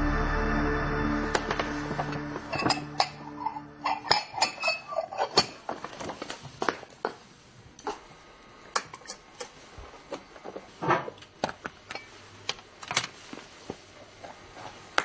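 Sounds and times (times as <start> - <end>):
background music: 0.0 - 4.6.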